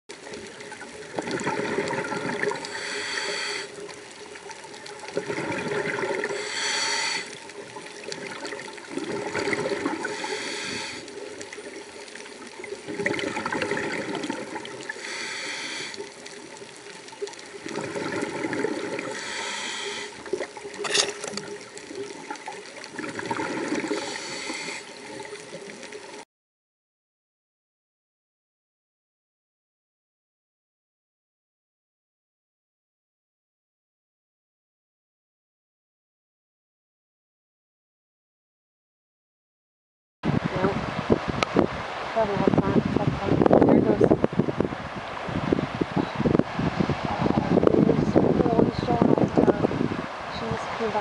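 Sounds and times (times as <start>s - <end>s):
exhaled bubbles gurgling: 0.1s - 26.2s
regulator inhale hiss: 2.6s - 3.9s, 6.2s - 7.4s, 10.0s - 11.2s, 14.9s - 16.2s, 19.0s - 20.3s, 23.9s - 25.1s.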